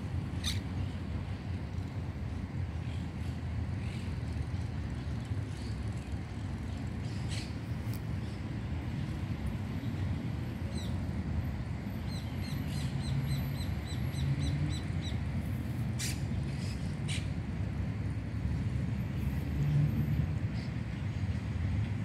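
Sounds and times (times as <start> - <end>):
city traffic rumble: 0.0 - 22.0.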